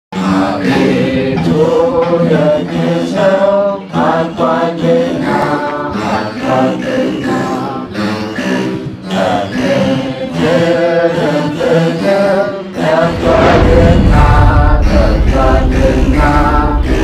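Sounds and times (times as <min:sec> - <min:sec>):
men singing a hymn: 0:00.2 - 0:17.0
steady low drone: 0:06.9 - 0:17.0.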